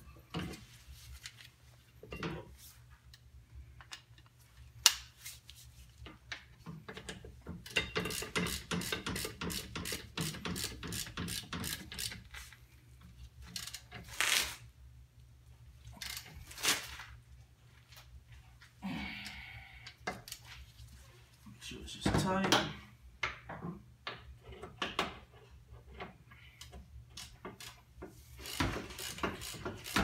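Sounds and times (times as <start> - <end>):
ratchet wrench clicking: 7.6 - 12.3, 28.4 - 30.0.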